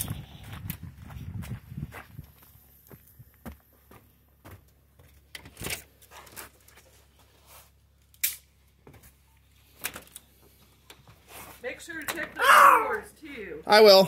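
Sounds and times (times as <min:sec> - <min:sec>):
footsteps: 0:00.0 - 0:07.8.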